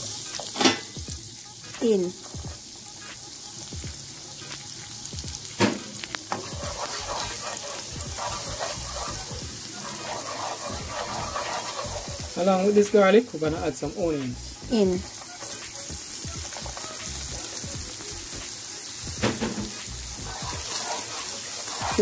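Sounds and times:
garlic sizzling in butter: 0:00.0 - 0:22.0
wooden spatula scraping a pan: 0:06.3 - 0:17.6, 0:19.5 - 0:22.0
knock on pan: 0:19.2 - 0:19.8.

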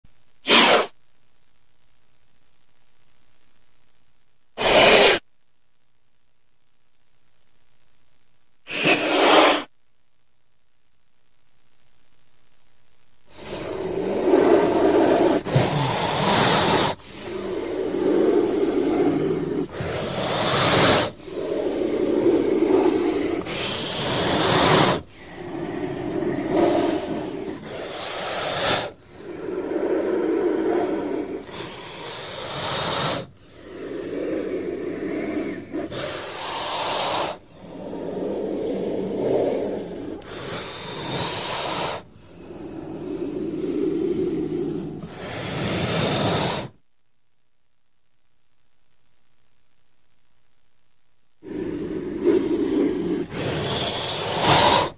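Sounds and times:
snake hissing: 0:00.4 - 0:01.0, 0:04.6 - 0:05.2, 0:08.7 - 0:09.7, 0:13.3 - 0:46.8, 0:51.4 - 0:54.9.

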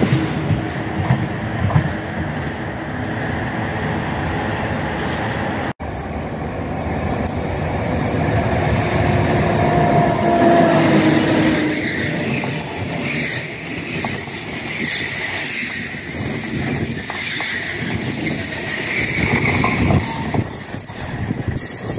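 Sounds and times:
train wheels rumbling over rails: 0:00.0 - 0:21.9
train wheel squeal: 0:09.5 - 0:21.9.

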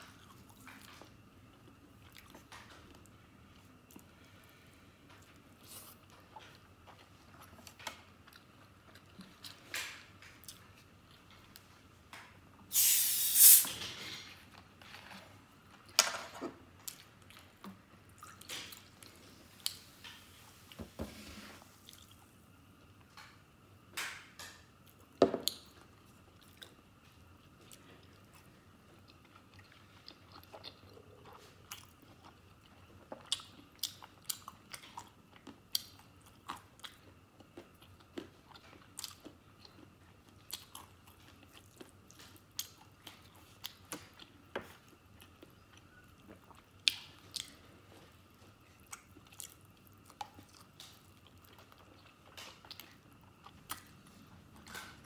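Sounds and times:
bottle opening fizzing hiss: 0:12.7 - 0:13.8
wet chewing and smacking: 0:25.0 - 0:55.0.

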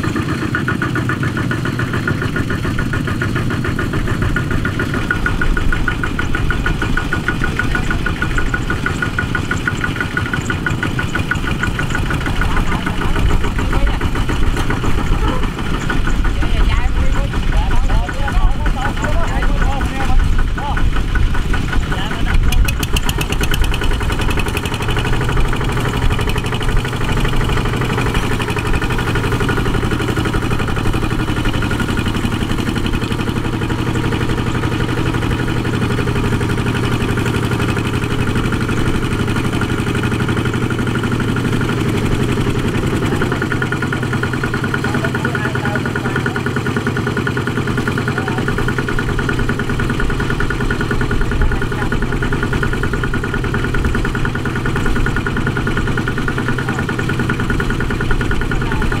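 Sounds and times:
diesel tractor engine running: 0:00.0 - 0:59.0.

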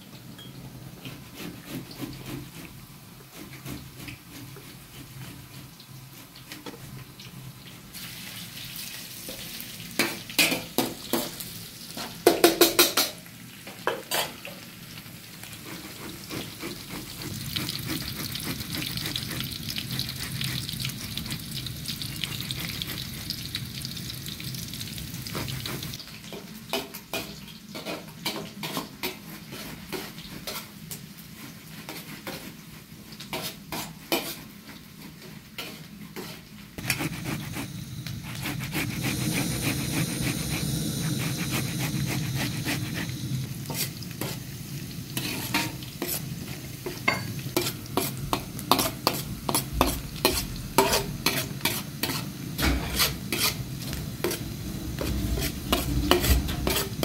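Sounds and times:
food sizzling in oil: 0:00.0 - 0:57.0
tomatoes scraped on metal grater: 0:01.1 - 0:06.7, 0:15.6 - 0:20.7, 0:35.6 - 0:44.4, 0:47.6 - 0:53.6, 0:55.0 - 0:57.0
metal spoon scraping pan: 0:14.0 - 0:14.4, 0:45.2 - 0:46.2, 0:46.8 - 0:53.6, 0:55.0 - 0:57.0.

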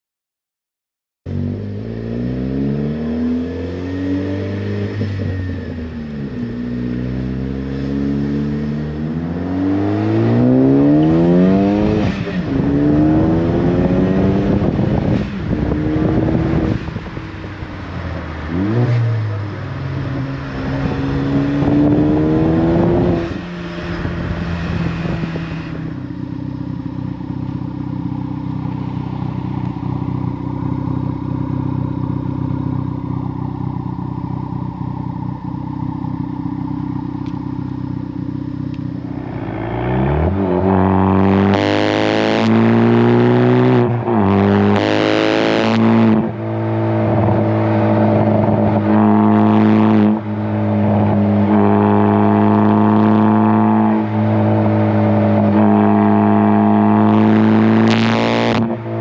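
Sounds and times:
car engine accelerating: 0:01.3 - 0:59.0
car engine idling: 0:14.6 - 0:40.7.

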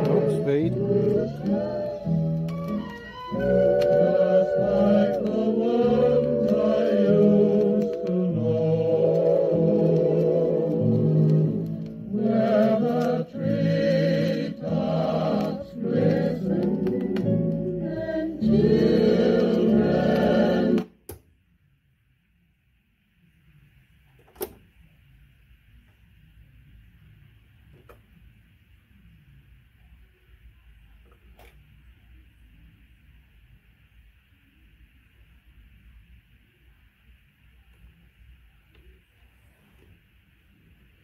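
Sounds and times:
music from vinyl record: 0:00.0 - 0:21.0
vinyl surface crackle clicks: 0:06.1 - 0:08.3, 0:09.0 - 0:13.4.

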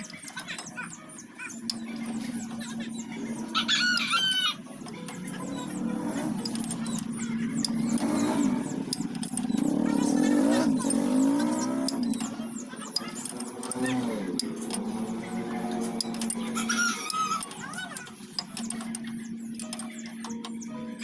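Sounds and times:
background music: 0:00.0 - 0:21.0
rooster crowing: 0:03.5 - 0:04.6, 0:16.6 - 0:17.4.

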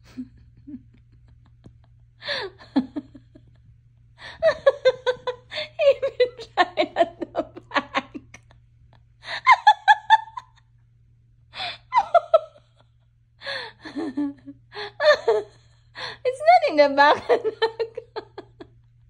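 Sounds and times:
woman laughing: 0:00.0 - 0:08.6, 0:09.2 - 0:10.7, 0:11.6 - 0:12.8, 0:13.4 - 0:19.0.

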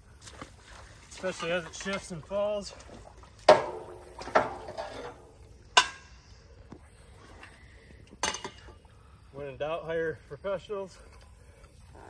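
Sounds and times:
metal pipe clanking on metal frame: 0:03.5 - 0:06.1, 0:08.2 - 0:08.7.

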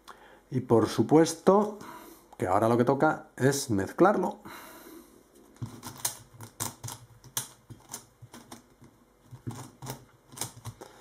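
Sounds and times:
plastic puzzle clicking: 0:05.7 - 0:08.7, 0:09.4 - 0:10.8.

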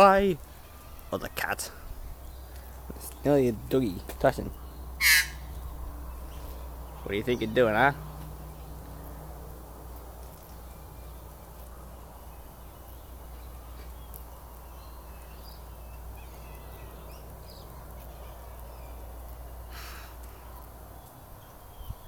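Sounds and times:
steady low rumble: 0:01.8 - 0:22.0
faint short chirping calls: 0:09.9 - 0:22.0.

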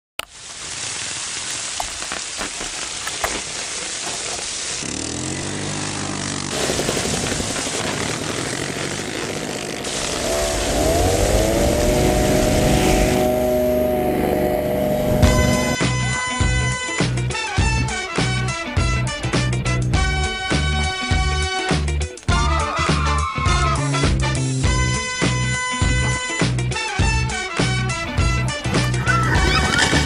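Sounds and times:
paramotor engine and propeller: 0:04.8 - 0:15.8
rushing noise: 0:09.8 - 0:15.8.

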